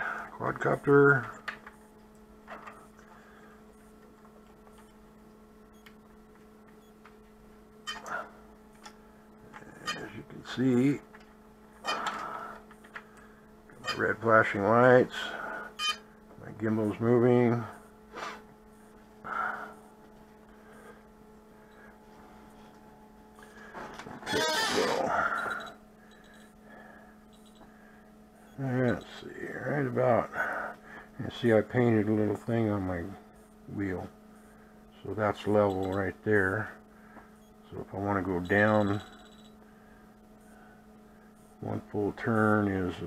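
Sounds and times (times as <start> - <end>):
faint electrical hum: 0.0 - 43.0.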